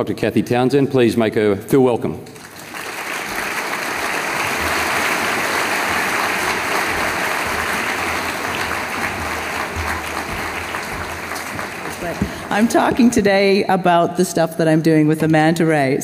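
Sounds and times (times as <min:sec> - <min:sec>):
large audience applauding: 0:02.3 - 0:13.3.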